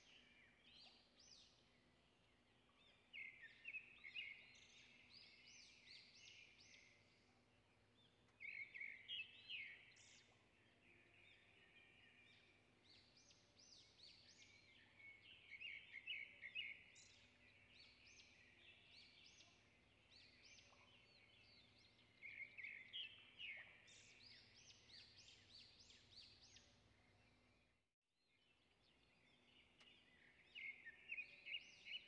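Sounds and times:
faint bird chirping: 0:00.0 - 0:32.0.

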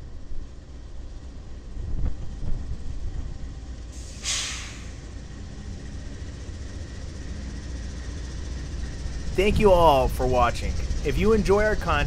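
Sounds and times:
freight train rumbling past: 0:00.0 - 0:12.0
air hiss from train: 0:03.9 - 0:05.2.

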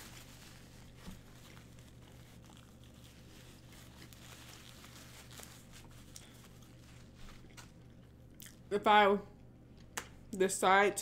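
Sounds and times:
low steady hum: 0:00.0 - 0:11.0
person chewing: 0:01.2 - 0:04.7, 0:05.6 - 0:08.7.

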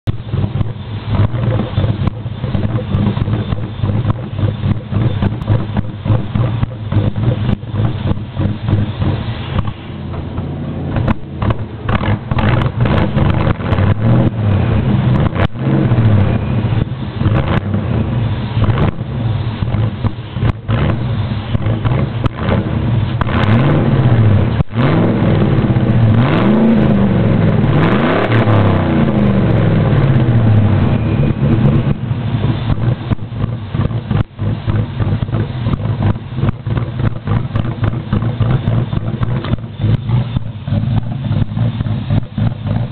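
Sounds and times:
loud engine idling and revving: 0:00.0 - 0:42.9.

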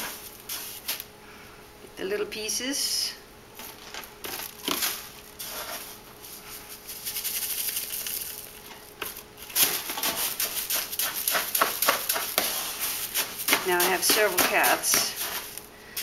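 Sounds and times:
scoop scraping cat litter: 0:03.6 - 0:08.4, 0:09.4 - 0:16.0.

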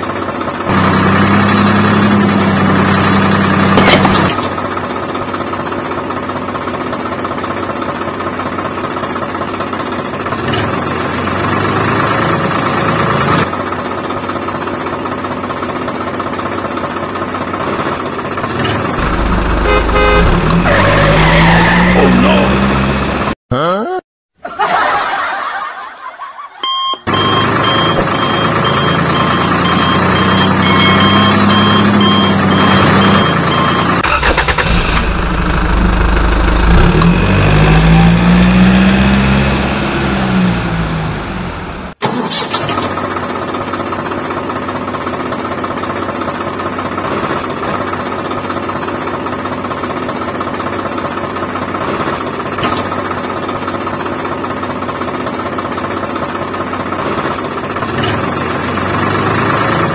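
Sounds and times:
tractor engine running: 0:00.0 - 0:11.3, 0:12.2 - 0:23.4, 0:27.0 - 0:58.9
rapid repeated beep: 0:26.6 - 0:34.0.

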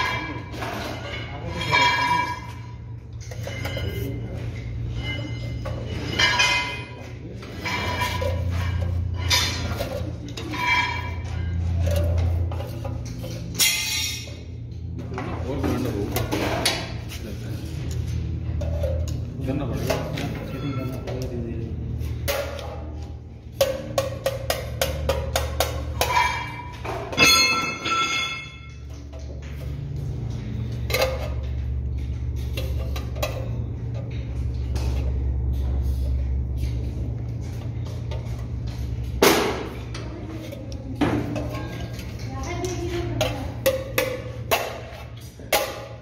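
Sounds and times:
ringing metallic clank: 0:00.0 - 0:07.0, 0:26.0 - 0:28.9
low electrical hum: 0:00.0 - 0:46.0.

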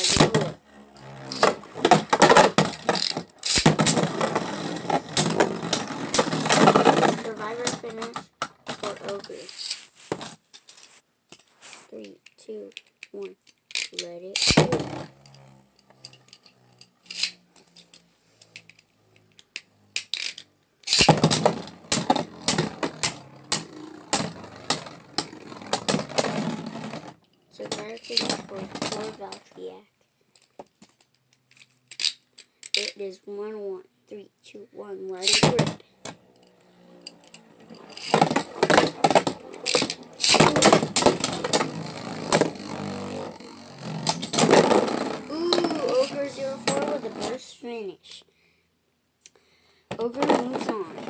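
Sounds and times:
spinning top whirring: 0:00.0 - 0:08.0, 0:13.7 - 0:27.2, 0:35.2 - 0:47.4.

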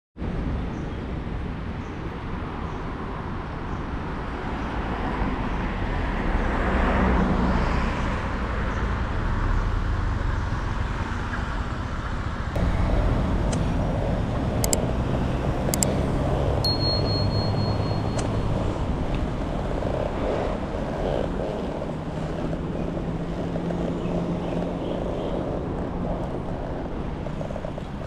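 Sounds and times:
road traffic noise: 0:00.2 - 0:28.0
vehicle passing: 0:04.7 - 0:28.0
sharp high clicks: 0:14.6 - 0:14.8, 0:15.7 - 0:16.0, 0:16.7 - 0:19.2.

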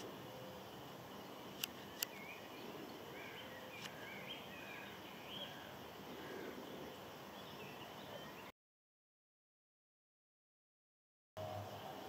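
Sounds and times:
faint bird chirps: 0:00.0 - 0:08.5
low background noise: 0:00.0 - 0:08.5
sharp clicks: 0:01.6 - 0:02.2.

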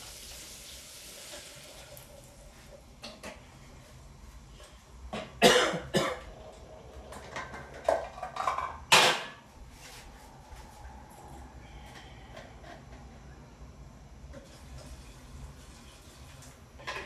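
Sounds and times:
man coughing: 0:05.4 - 0:06.3.

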